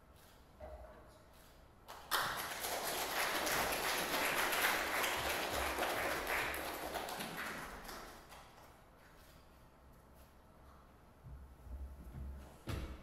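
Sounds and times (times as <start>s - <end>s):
audience applause: 1.9s - 8.5s.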